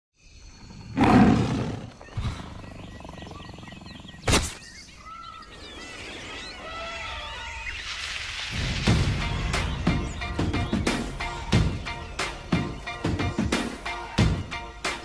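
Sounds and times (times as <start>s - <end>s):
short chirping calls: 0.3s - 8.2s.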